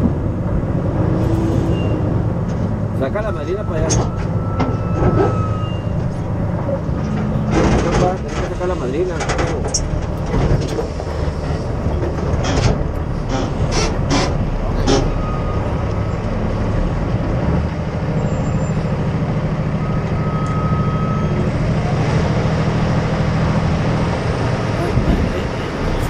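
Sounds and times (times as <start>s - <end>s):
diesel truck engine running: 0.0s - 26.0s
knocks and rattles from rig: 6.9s - 15.0s.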